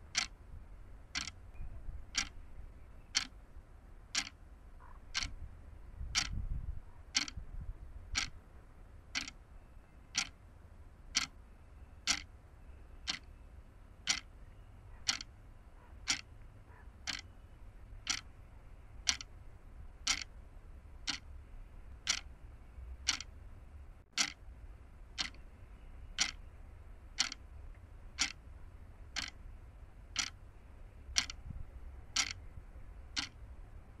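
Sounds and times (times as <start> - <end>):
sharp ticking: 0.0 - 0.4, 1.1 - 1.4, 2.1 - 2.4, 3.1 - 3.4, 4.1 - 4.4, 5.1 - 5.4, 6.2 - 6.4, 9.2 - 9.4, 10.1 - 10.4, 12.0 - 12.3, 13.0 - 13.3, 14.0 - 14.3, 15.1 - 15.3, 17.1 - 17.3, 18.0 - 18.3, 19.0 - 19.4, 20.0 - 20.3, 21.0 - 21.3, 22.0 - 22.3, 23.0 - 23.4, 24.1 - 24.4, 25.2 - 25.4, 26.1 - 26.5, 27.2 - 27.5, 28.1 - 28.4, 29.2 - 29.4, 30.2 - 30.4, 32.1 - 32.4, 33.1 - 33.4
steady low rumble: 0.0 - 34.0.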